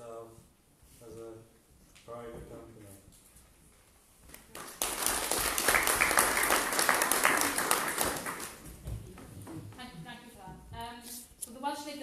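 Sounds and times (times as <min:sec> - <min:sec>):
audience applauding: 0:04.5 - 0:08.9.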